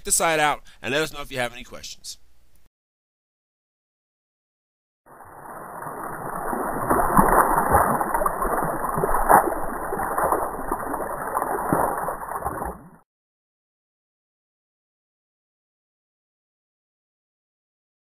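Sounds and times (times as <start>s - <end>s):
water splashing and sloshing: 5.1s - 13.0s.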